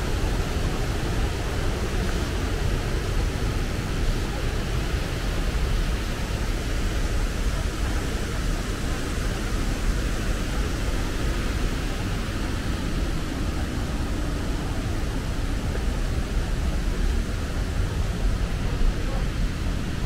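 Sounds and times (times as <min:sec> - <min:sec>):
waterfall roaring: 0:00.0 - 0:20.0.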